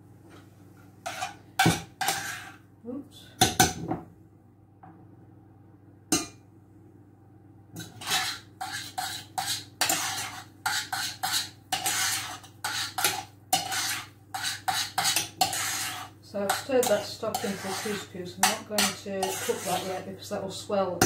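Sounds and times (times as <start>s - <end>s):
spoon scraping metal saucepan: 1.0s - 2.6s, 7.8s - 20.2s.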